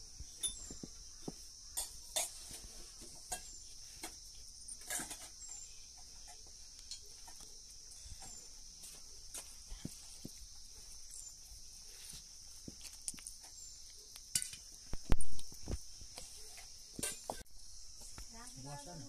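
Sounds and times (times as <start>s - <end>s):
insect chorus: 0.0s - 19.0s
kitchen knocks and clinks: 4.8s - 5.4s.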